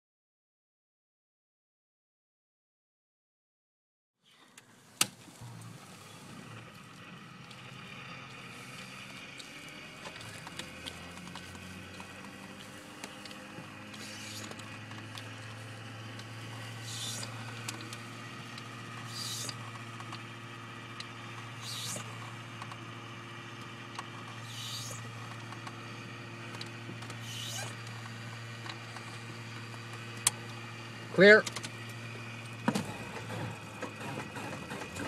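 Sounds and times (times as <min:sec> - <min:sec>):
steady electric hum: 0:04.6 - 0:33.8
short hisses: 0:16.7 - 0:17.4, 0:19.0 - 0:19.6, 0:21.6 - 0:22.1, 0:24.4 - 0:25.1, 0:27.2 - 0:27.8.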